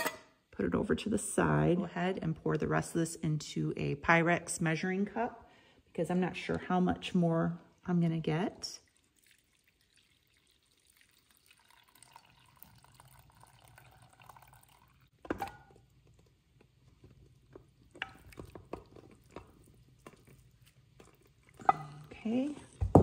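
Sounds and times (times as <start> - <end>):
broth pouring: 8.8 - 22.9.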